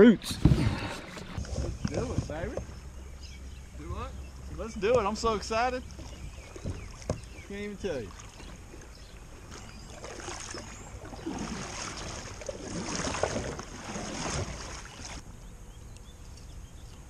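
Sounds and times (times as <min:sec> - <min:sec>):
paddle swishing through water: 0:00.2 - 0:02.8, 0:04.4 - 0:15.2.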